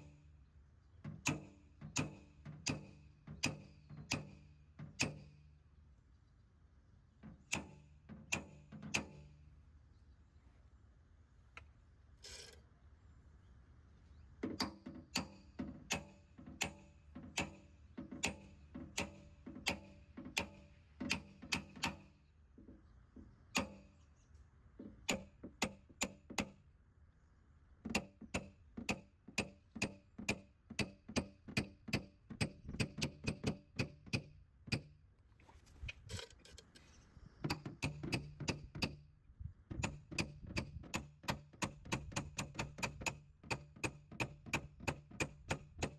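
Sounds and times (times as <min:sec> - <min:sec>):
hammer tapping on metal: 0:01.0 - 0:05.4, 0:07.2 - 0:09.4, 0:14.4 - 0:22.2, 0:25.0 - 0:26.6, 0:37.4 - 0:39.0.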